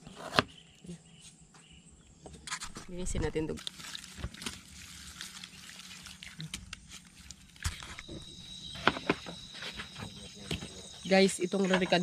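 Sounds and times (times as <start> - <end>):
crickets chirping: 0.1 - 12.0
hands rubbing wet octopus: 3.6 - 7.8.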